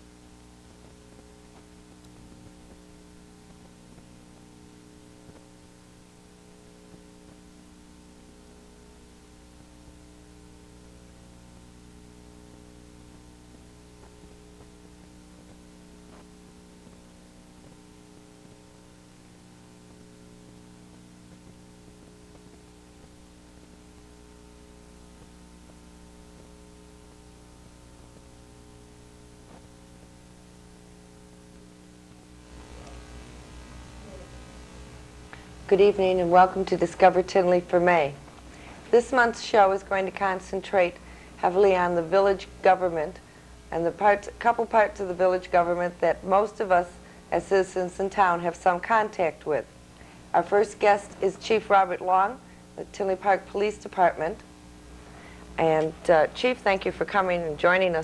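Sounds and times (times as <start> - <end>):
light hiss: 0.0 - 35.8
electrical mains hum: 0.0 - 58.0.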